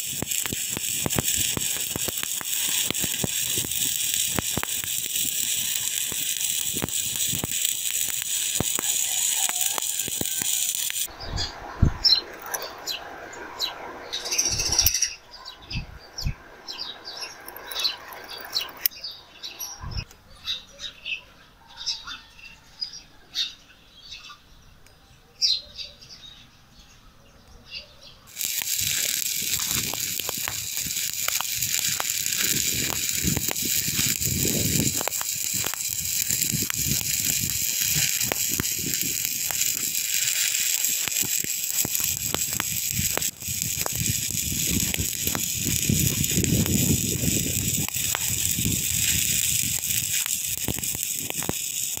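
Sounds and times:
welding arc crackling hiss: 0:00.0 - 0:11.1, 0:28.3 - 0:52.0
faint chirps: 0:00.0 - 0:52.0.

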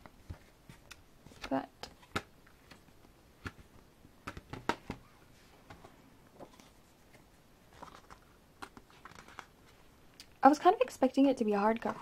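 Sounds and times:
cardboard slipcover rustling: 0:00.0 - 0:09.9.

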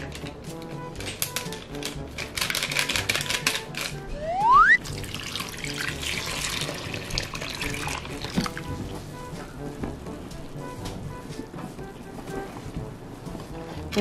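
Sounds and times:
background music: 0:00.0 - 0:14.0
short rising whistle: 0:04.0 - 0:04.8
water pouring into bowl: 0:04.8 - 0:08.6.

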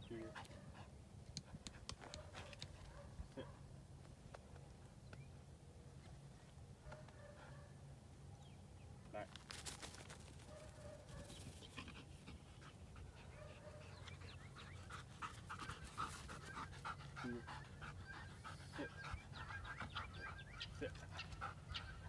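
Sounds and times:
dog panting: 0:11.6 - 0:22.0.

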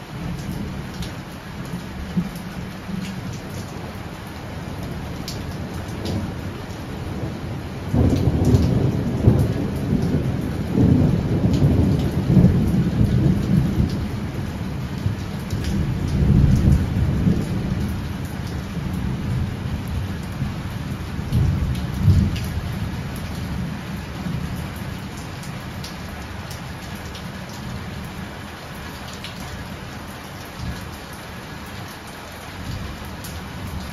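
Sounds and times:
heavy rain: 0:00.0 - 0:33.9
rolling thunder: 0:07.0 - 0:14.4.

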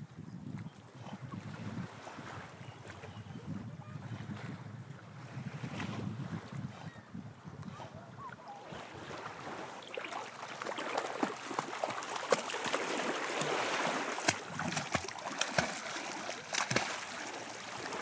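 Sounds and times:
water lapping in shallows: 0:00.5 - 0:18.0
dog paddling in water: 0:05.2 - 0:18.0.

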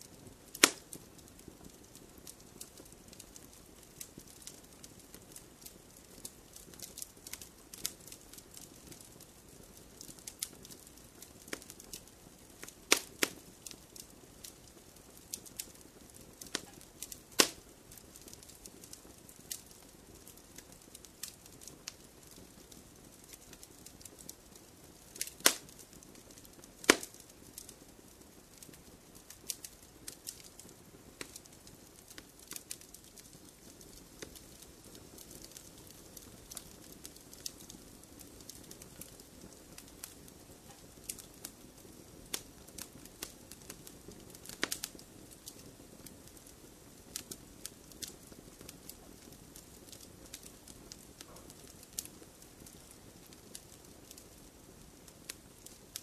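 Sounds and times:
fire crackling: 0:00.0 - 0:56.0
fire popping: 0:00.0 - 0:56.0.

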